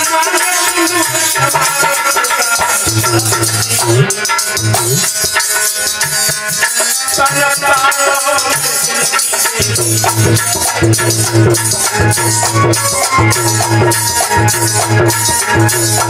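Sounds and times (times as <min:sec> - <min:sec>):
hand percussion rattle: 0:00.0 - 0:16.0
instrumental accompaniment: 0:00.0 - 0:16.0
man singing devotional song: 0:00.0 - 0:16.0.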